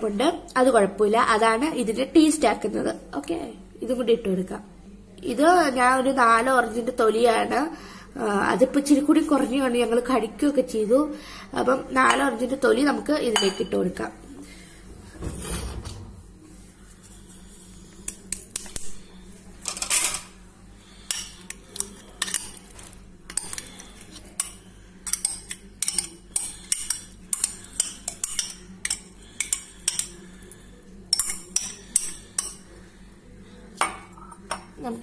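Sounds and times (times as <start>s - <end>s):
metal spoon clinking on dishes: 13.4s - 13.8s, 24.4s - 30.2s, 31.1s - 32.6s.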